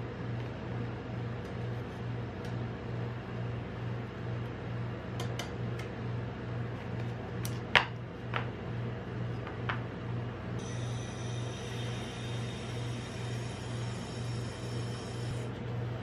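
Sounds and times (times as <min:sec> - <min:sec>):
machine pulsing hum: 0:10.0 - 0:16.0.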